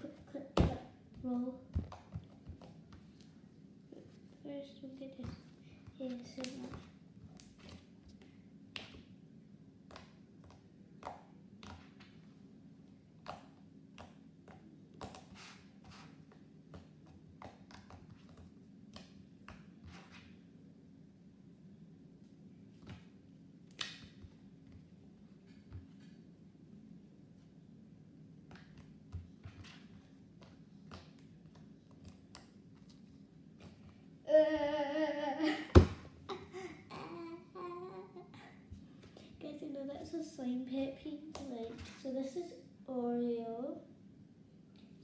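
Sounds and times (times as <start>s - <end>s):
low steady hum: 0.0s - 45.0s
girl humming: 34.3s - 38.6s.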